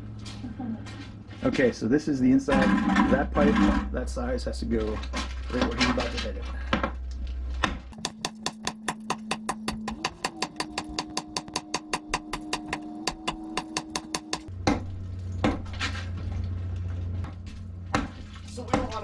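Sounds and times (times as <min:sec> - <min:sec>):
hammer knocking on concrete: 0:08.0 - 0:15.6.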